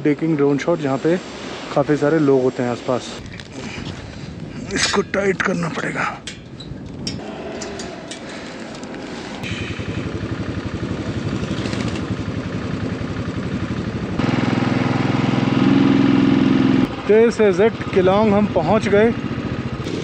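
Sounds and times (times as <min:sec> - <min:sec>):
motorcycle engine running: 0:07.2 - 0:20.0.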